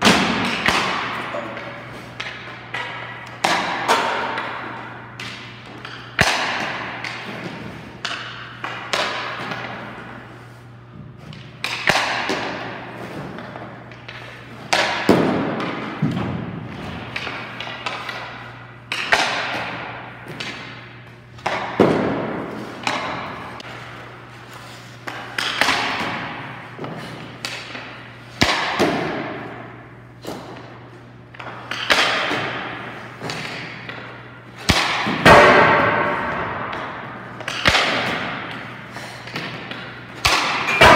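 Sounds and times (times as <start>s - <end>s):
hockey puck cracks: 0.0s - 10.1s, 11.6s - 20.8s, 21.4s - 29.6s, 31.4s - 40.9s
steady low hum: 0.0s - 40.9s.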